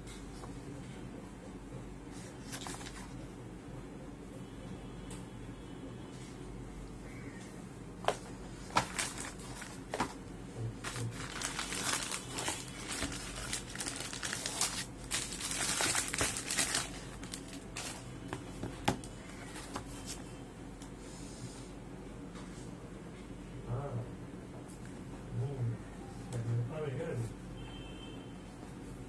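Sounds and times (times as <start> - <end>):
plastic packaging crinkling: 8.6 - 10.2, 10.8 - 18.2.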